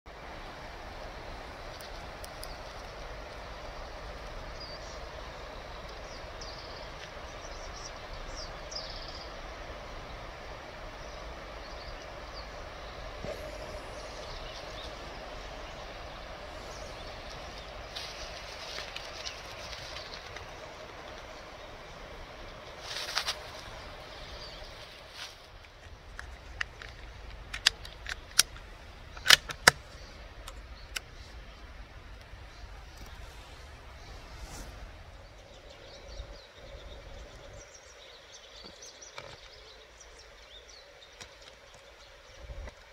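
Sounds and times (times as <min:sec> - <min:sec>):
rifle handling clicks and knocks: 0:25.6 - 0:29.8.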